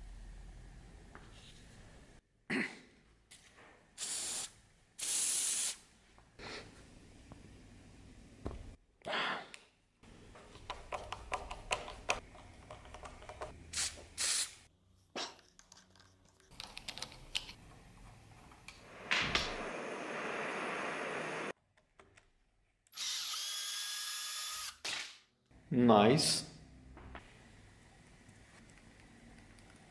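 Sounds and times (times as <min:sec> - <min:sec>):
screwdriver clicking and scraping: 0:15.3 - 0:17.6
cordless drill whining: 0:23.0 - 0:24.7.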